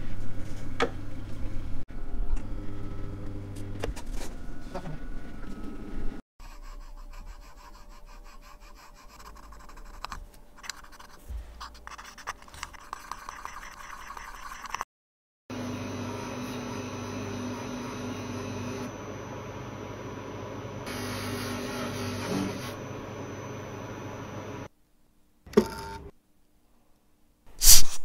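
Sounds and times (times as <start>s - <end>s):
cotton swab scratching on metal: 6.4s - 14.8s
polishing machine motor hum: 15.6s - 24.7s.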